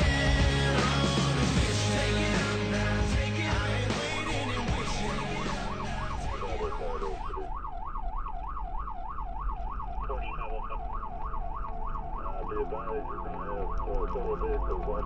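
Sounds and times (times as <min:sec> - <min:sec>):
music playing: 0:00.0 - 0:07.4
fire engine siren yelping: 0:03.9 - 0:15.0.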